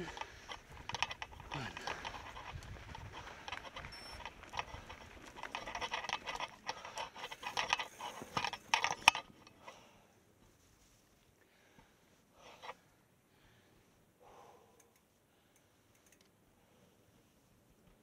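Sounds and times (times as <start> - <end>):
mountain bike rattling over rough trail: 0.0 - 9.9.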